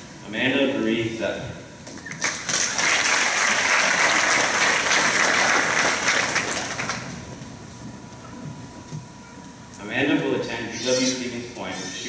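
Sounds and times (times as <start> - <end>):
audience applauding: 2.0 - 7.3.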